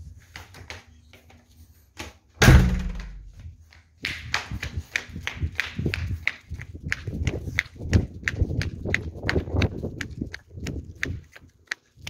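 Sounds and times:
door shutting with heavy thunk: 2.4 - 3.3
footsteps: 2.4 - 3.9.

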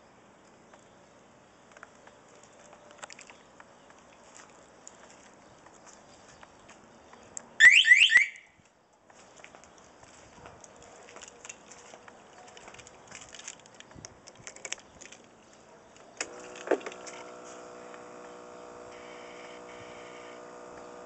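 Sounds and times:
light clicking and rustling: 8.6 - 17.3
steady electrical hum: 16.2 - 21.0.

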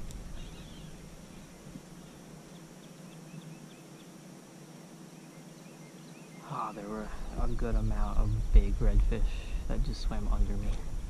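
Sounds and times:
creekside ambience: 0.0 - 11.0
bird chirping rapidly: 0.3 - 4.2.

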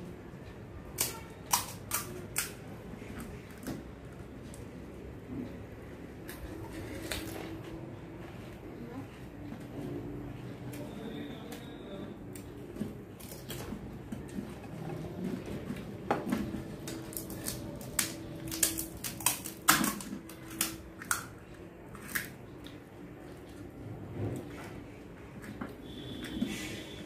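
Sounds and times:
crisp shells cracking: 16.6 - 22.7.

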